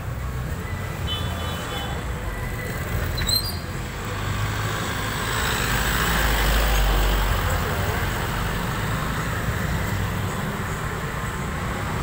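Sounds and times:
brief high squeaks: 3.1s - 3.7s.

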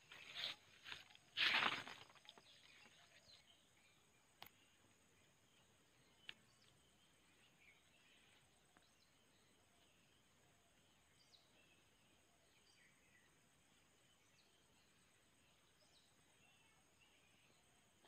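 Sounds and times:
faint outdoor ambience: 0.0s - 18.0s.

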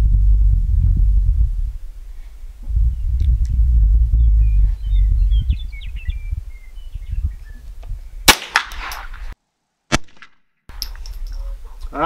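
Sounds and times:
low rumbling noise: 0.0s - 8.4s
rifle shot: 8.2s - 9.2s, 9.9s - 10.4s.

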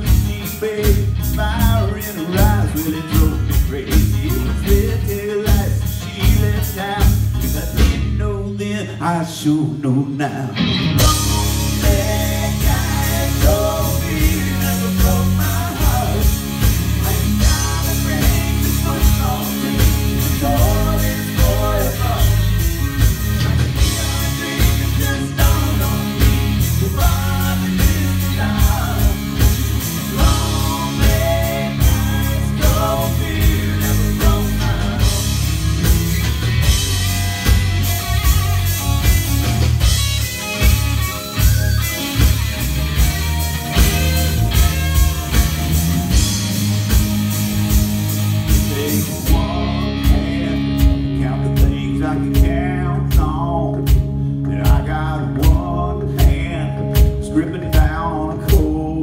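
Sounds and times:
man singing lead vocal: 0.0s - 35.9s, 48.5s - 59.0s
bass guitar: 0.0s - 59.0s
electric guitar: 0.0s - 59.0s
electronic drum kit beat: 11.0s - 58.8s.

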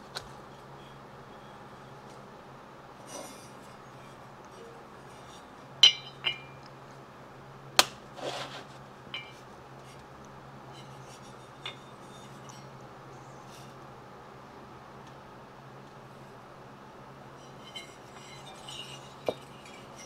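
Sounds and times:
steady low hum: 0.0s - 20.0s
metal scrape: 0.4s - 2.2s, 3.0s - 6.7s, 8.1s - 10.0s, 10.7s - 12.7s, 17.4s - 20.0s
metal cylinder clinking on workbench: 3.1s - 6.7s, 8.3s - 9.4s, 10.8s - 12.7s, 17.4s - 20.0s.

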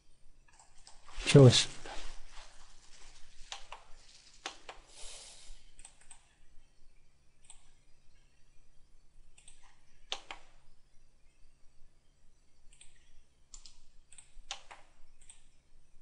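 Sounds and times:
computer mouse clicks: 0.5s - 1.0s, 3.5s - 4.9s, 5.6s - 6.4s, 7.4s - 7.8s, 9.3s - 10.6s, 12.7s - 15.6s
keyboard clicks: 3.5s - 4.9s, 5.6s - 6.4s, 7.4s - 7.8s, 9.3s - 10.6s, 12.7s - 15.6s.

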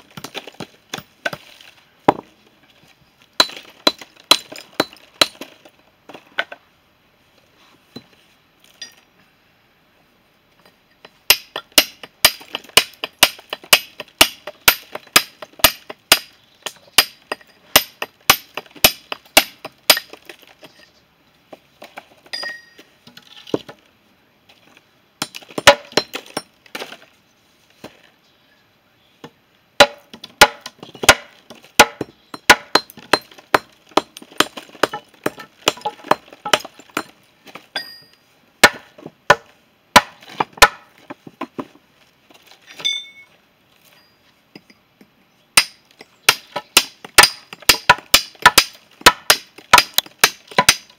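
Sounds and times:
hammer clinking on stone: 22.3s - 22.8s, 37.8s - 38.2s.

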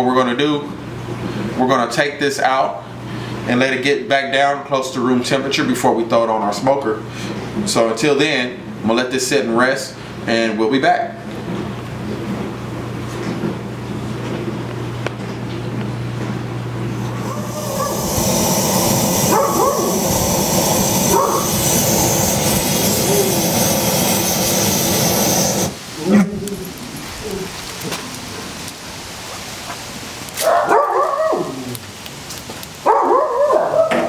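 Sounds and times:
gas torch hissing: 16.9s - 28.9s
dog whining and yipping: 33.0s - 34.0s.

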